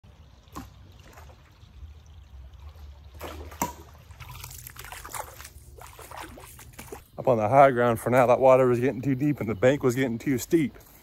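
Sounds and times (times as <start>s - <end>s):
creek water trickling: 0.0s - 11.0s
wading splashes: 0.1s - 7.1s.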